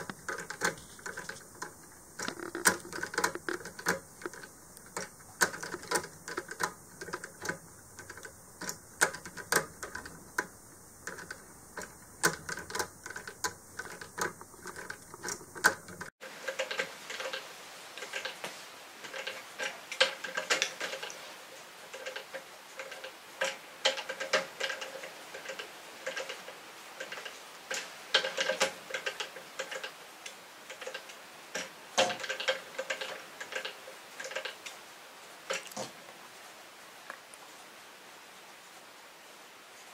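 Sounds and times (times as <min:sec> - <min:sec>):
kinetic sculptures clicking: 0:00.0 - 0:17.4, 0:18.0 - 0:34.8
background hiss: 0:00.0 - 0:39.9.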